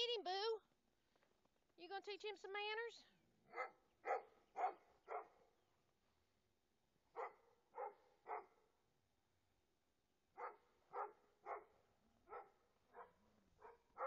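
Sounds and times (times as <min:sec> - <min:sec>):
small dog barking in high yaps: 0:03.5 - 0:05.4, 0:07.2 - 0:08.5, 0:10.4 - 0:11.7, 0:12.3 - 0:14.0.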